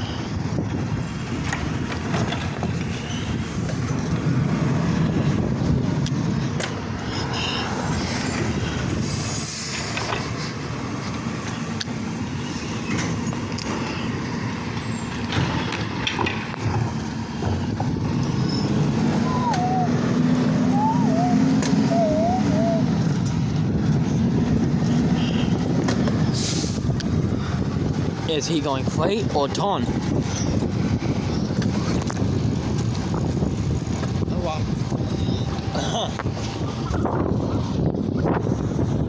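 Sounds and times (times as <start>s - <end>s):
air brake hiss: 26.3s - 26.8s.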